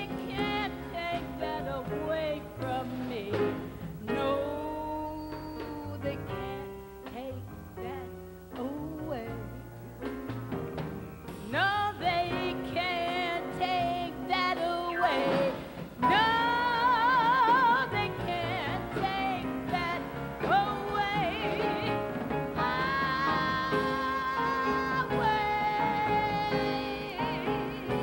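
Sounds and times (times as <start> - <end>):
instrumental accompaniment: 0.0 - 28.0
woman scat singing: 22.6 - 28.0.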